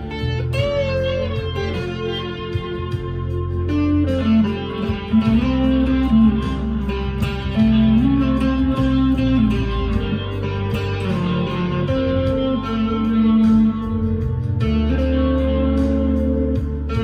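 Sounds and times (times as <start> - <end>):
overdriven electric guitar lead: 0.0 - 17.0.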